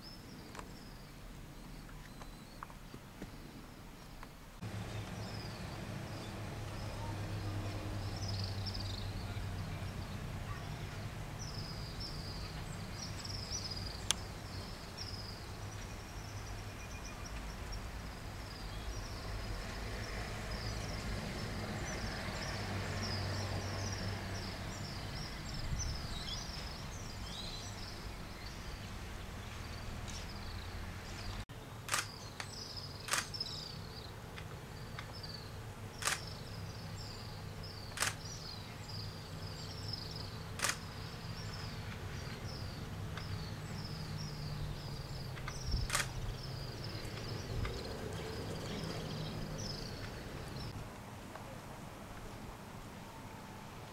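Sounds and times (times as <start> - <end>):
sharp clicks: 31.9 - 33.5, 36.0 - 36.4, 37.9 - 38.3, 40.6 - 41.0, 45.3 - 46.2.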